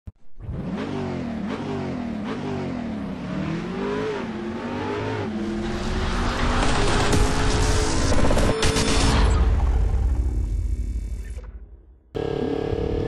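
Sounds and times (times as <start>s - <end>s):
engine revving: 0.2s - 9.7s.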